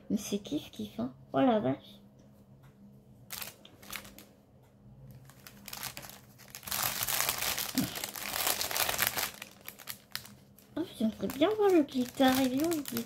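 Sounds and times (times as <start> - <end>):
packaging crinkling: 3.3 - 4.3, 5.1 - 13.0.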